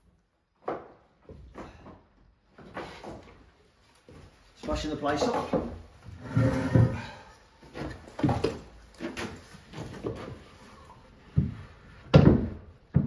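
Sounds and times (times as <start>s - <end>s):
wooden knocks and scrapes: 4.1s - 10.6s.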